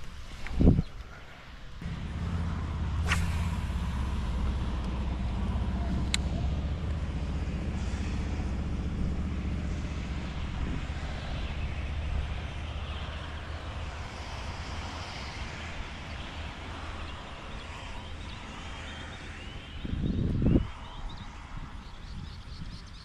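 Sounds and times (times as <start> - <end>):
low engine drone: 1.8 - 20.0.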